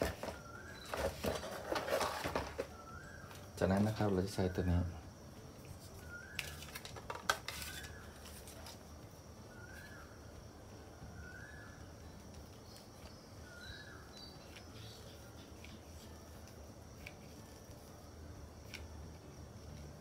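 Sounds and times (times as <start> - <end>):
faint bird chirp: 0.0 - 6.9, 7.5 - 16.4.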